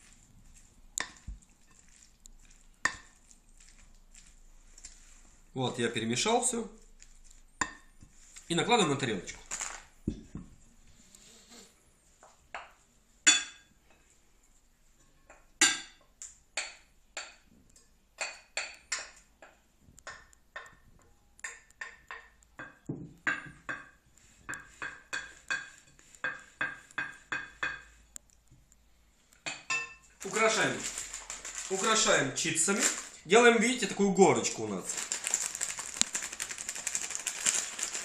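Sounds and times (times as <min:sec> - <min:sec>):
wooden spoon clinking on glass bowl: 0:29.5 - 0:30.2.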